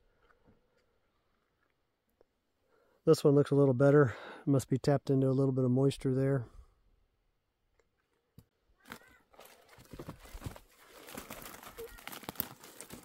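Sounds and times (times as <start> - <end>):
footsteps crunching on rocky ground: 8.9 - 13.0.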